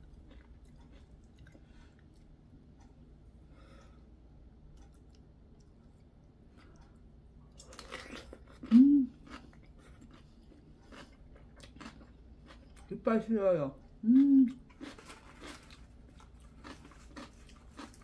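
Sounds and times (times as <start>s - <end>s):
crunching bites and chewing: 0.0s - 2.3s, 7.5s - 12.9s, 14.5s - 18.0s
person humming: 8.7s - 9.2s, 14.0s - 14.6s.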